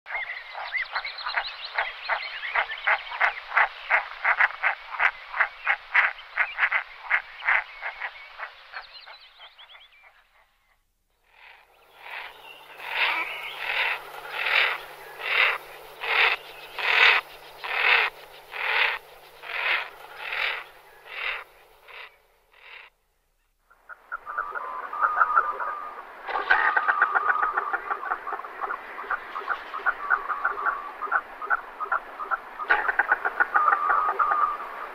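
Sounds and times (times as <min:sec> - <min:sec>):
merganser calling: 0:11.2 - 0:22.9.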